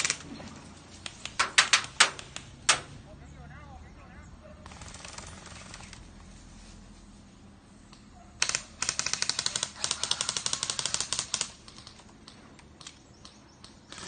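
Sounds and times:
airsoft guns firing bursts: 4.6s - 6.0s, 8.4s - 14.0s.

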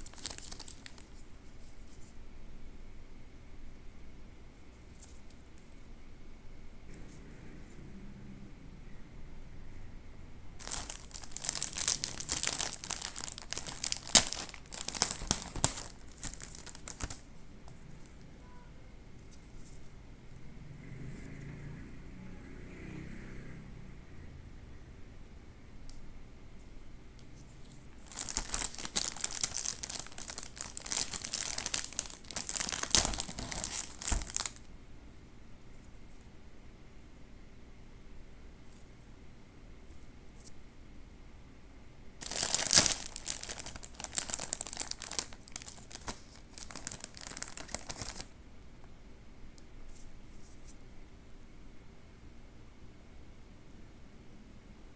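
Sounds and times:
plastic wrapper crinkling and tearing: 0.0s - 1.2s, 10.6s - 17.3s, 27.6s - 34.7s, 42.2s - 48.4s
sharp plastic crack: 10.6s - 17.3s, 28.0s - 34.6s.

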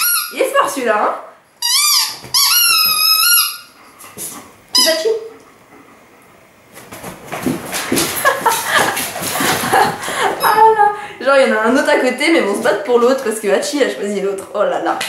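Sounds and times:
dog toy squeaker squealing: 0.0s - 0.5s, 1.6s - 3.8s, 4.7s - 5.2s
woman laughing: 8.1s - 11.1s.

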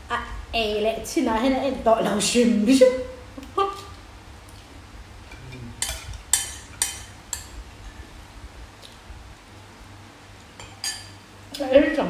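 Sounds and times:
spoons clinking on ceramic bowls: 10.6s - 11.2s.

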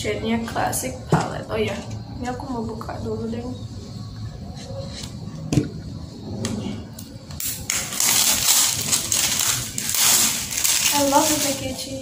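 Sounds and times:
cellophane crinkling and tearing: 7.4s - 12.0s.

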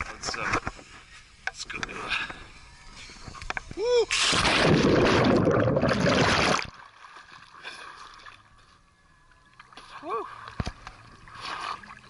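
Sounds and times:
person splashing into pool: 4.1s - 8.4s
pool water sloshing: 4.2s - 12.0s.

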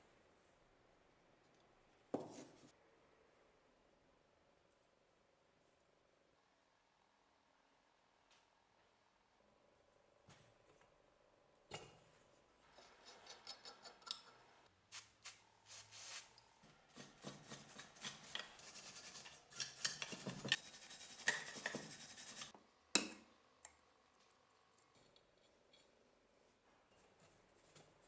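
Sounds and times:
steel tool scraping metal: 17.0s - 22.5s.

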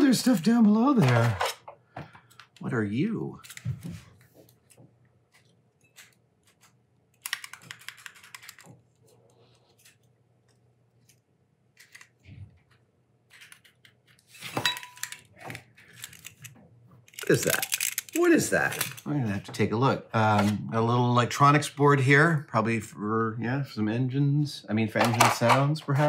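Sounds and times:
small parts clicking and rattling: 5.4s - 9.0s, 13.3s - 19.1s.

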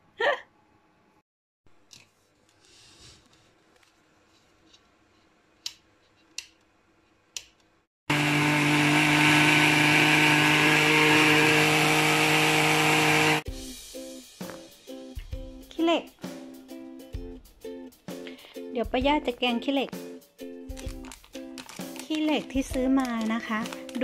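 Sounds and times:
blender running: 8.1s - 13.5s.

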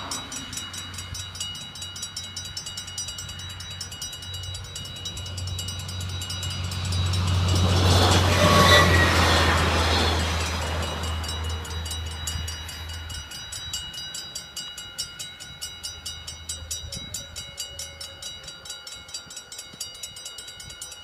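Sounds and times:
level crossing warning bells: 0.0s - 21.0s
low rumble of diesel train: 0.0s - 21.0s.

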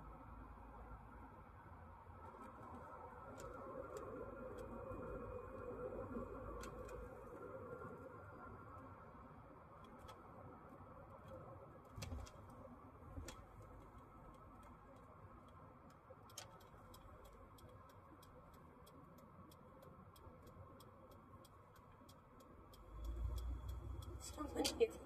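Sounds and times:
faint regular ticking: 13.2s - 25.0s.

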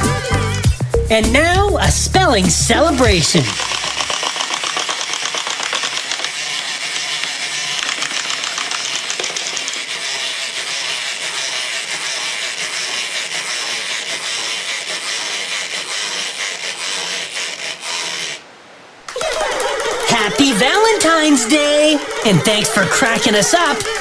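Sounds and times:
clockwork toys clattering: 3.6s - 10.2s.

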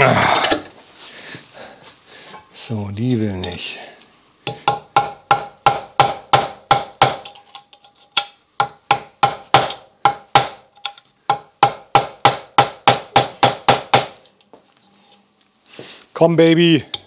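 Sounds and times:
hammer striking metal: 4.5s - 7.5s, 8.2s - 10.7s, 11.3s - 14.2s.

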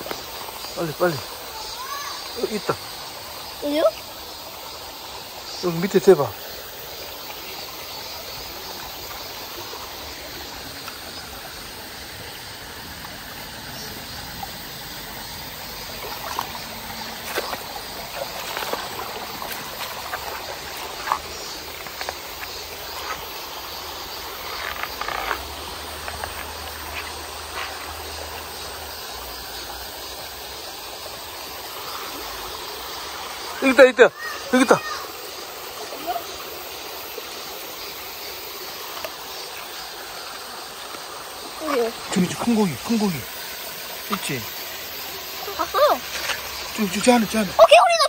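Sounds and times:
stream running over rocks: 0.0s - 48.0s.

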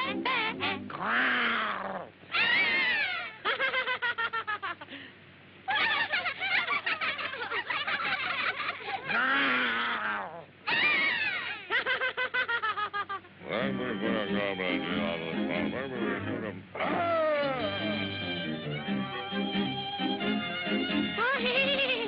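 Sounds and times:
cartoon character cries: 0.1s - 3.4s, 9.0s - 11.6s, 16.8s - 18.2s
cartoon laughter-like chatter: 2.3s - 4.8s, 5.7s - 13.2s, 21.2s - 22.0s.

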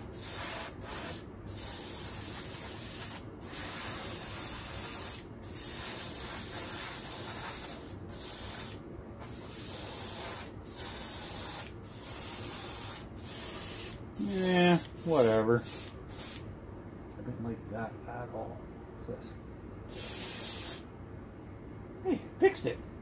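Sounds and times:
airbrush spraying hiss: 0.0s - 16.4s, 19.9s - 20.9s.

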